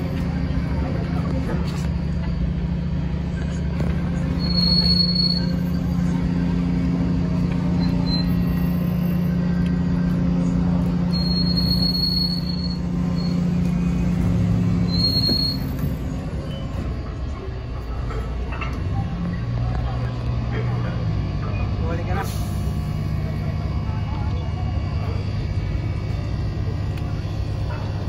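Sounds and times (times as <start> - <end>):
ferry engines droning: 0.0 - 28.0
high-pitched squeaks: 4.2 - 6.2, 7.8 - 9.1, 11.1 - 13.6, 14.8 - 16.8.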